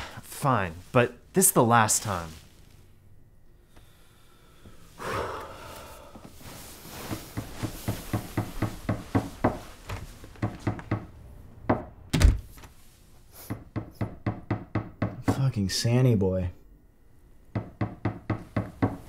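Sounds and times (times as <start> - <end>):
rapid knocking and hammering: 7.1 - 11.9, 13.5 - 15.6, 17.5 - 19.0.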